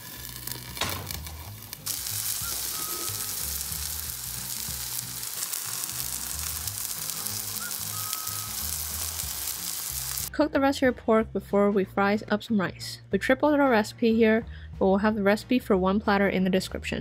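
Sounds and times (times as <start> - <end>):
pork chops sizzling in oil: 0.0 - 10.3.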